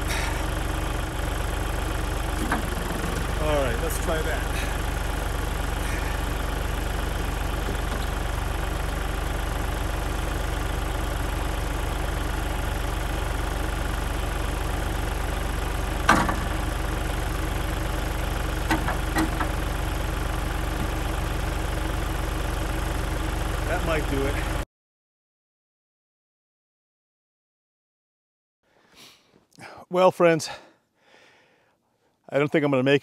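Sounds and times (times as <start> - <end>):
tractor engine running: 0.0 - 24.6.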